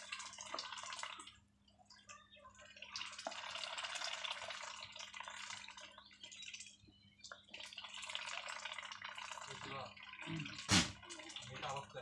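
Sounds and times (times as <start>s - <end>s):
ducks slurping and clicking bills: 0.0s - 12.0s.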